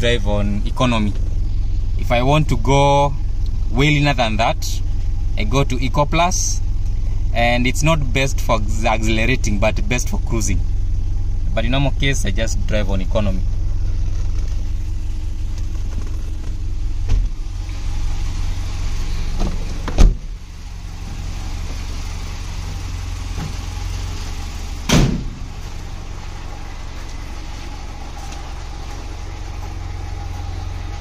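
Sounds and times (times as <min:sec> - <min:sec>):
car engine idling: 0:00.0 - 0:31.0
car door shutting: 0:15.6 - 0:17.4, 0:19.3 - 0:20.4, 0:24.8 - 0:25.5.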